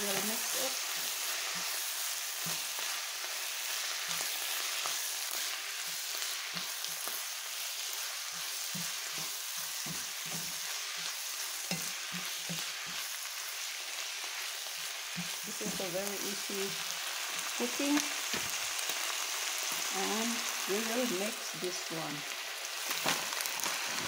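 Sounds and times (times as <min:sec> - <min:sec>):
food sizzling in a pan: 0:00.0 - 0:24.0
spatula scraping a pan: 0:07.8 - 0:13.2.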